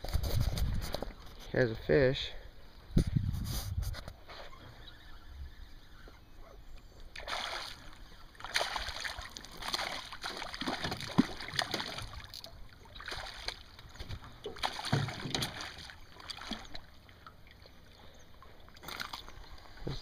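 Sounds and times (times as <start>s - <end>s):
fish thrashing and splashing: 7.2s - 17.6s, 18.7s - 19.7s.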